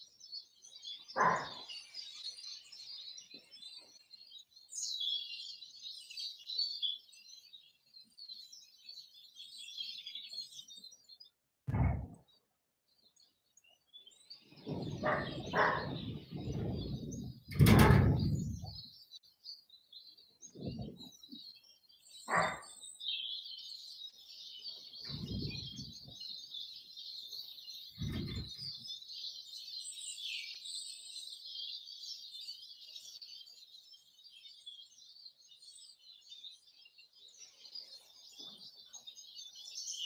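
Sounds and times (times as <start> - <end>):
small birds chirping: 0.0 - 40.0
muffled thuds: 11.7 - 12.2, 16.5 - 18.8.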